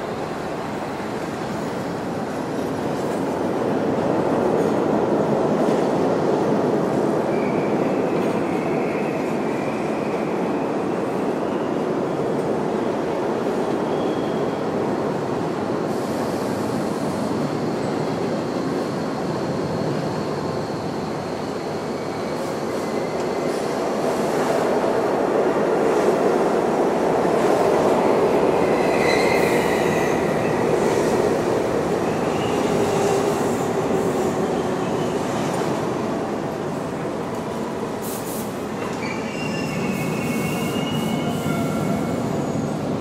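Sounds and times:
subway train rumbling: 0:00.0 - 0:43.0
high wheel squeals: 0:28.8 - 0:30.6, 0:38.9 - 0:42.9.

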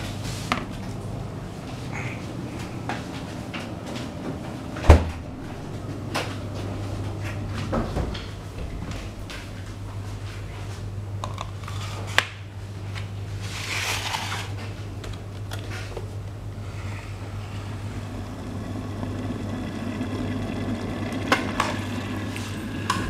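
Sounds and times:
short rustle or scrape: 0:13.4 - 0:14.7
low hum: 0:16.2 - 0:23.0.

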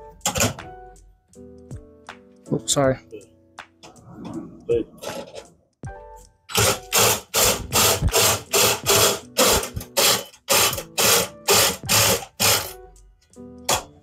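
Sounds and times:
ratchet wrench clicking: 0:06.5 - 0:12.8.

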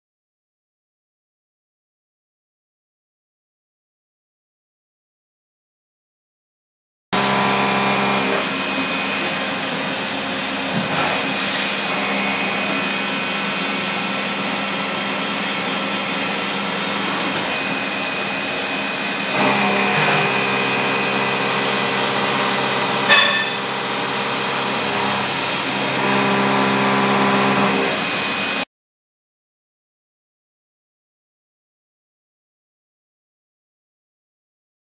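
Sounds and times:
lathe motor whine: 0:07.2 - 0:28.6
metal cutting noise: 0:07.2 - 0:28.6.

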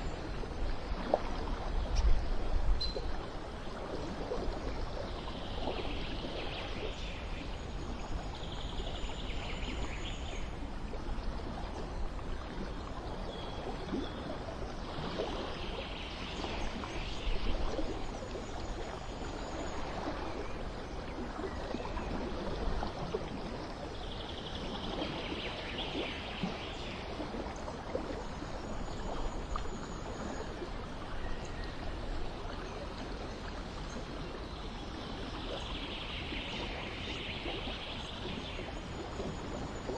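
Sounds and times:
trickling water: 0:00.0 - 0:39.9.

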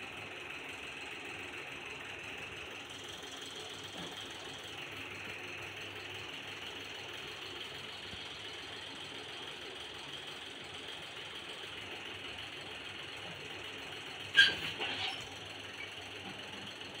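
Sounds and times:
sharp clatter: 0:14.3 - 0:16.4.

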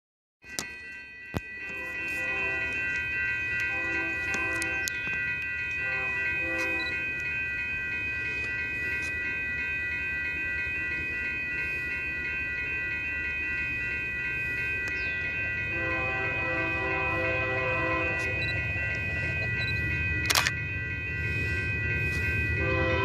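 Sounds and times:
steady high-pitched ringing tone: 0:00.4 - 0:23.0
distant locomotive horn: 0:01.6 - 0:02.8, 0:03.6 - 0:05.0, 0:05.8 - 0:07.0, 0:15.7 - 0:18.5, 0:22.6 - 0:23.0.

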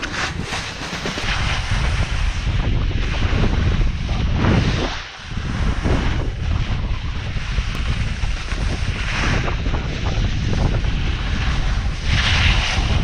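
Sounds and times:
snowboard scraping over hard snow: 0:00.0 - 0:13.0
wind noise on microphone: 0:00.0 - 0:13.0.

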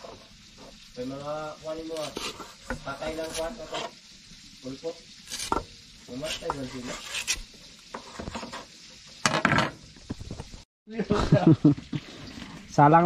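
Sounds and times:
fish sizzling while frying: 0:00.0 - 0:10.7
knife cutting mango: 0:01.9 - 0:03.7, 0:05.2 - 0:07.5.

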